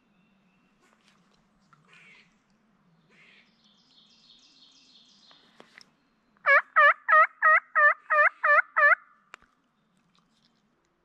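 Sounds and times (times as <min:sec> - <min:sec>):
turkey call yelps: 0:06.4 - 0:09.1.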